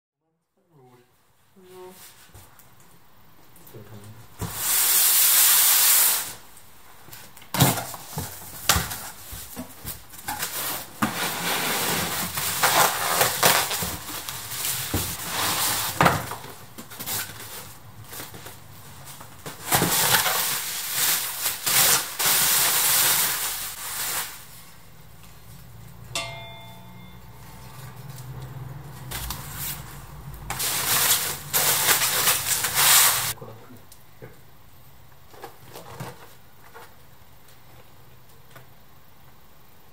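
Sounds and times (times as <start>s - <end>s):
loud short hissing noise: 4.5s - 6.4s, 30.6s - 33.4s
plastic wrapping crinkling: 7.3s - 24.8s, 29.0s - 33.4s.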